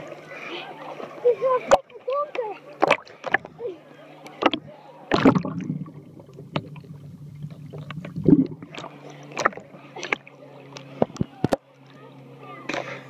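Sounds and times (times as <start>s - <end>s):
faint low hum: 0.0s - 13.0s
water splashing and lapping: 0.0s - 13.0s
sharp splashes and knocks: 2.8s - 3.5s, 4.4s - 10.3s.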